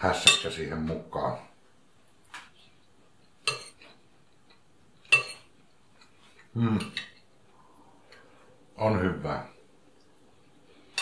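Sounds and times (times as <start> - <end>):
cutlery clinking on a china plate: 5.1 - 5.5.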